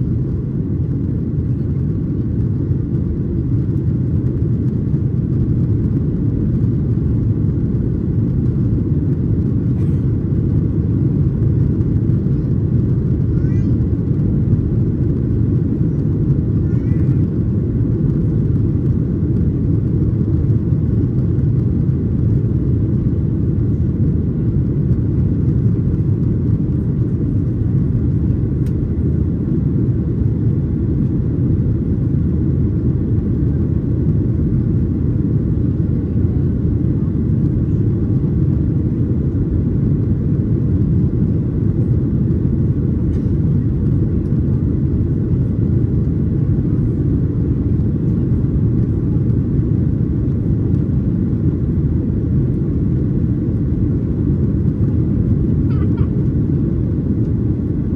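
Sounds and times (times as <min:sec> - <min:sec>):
jet engine cabin rumble: 0:00.0 - 0:57.9.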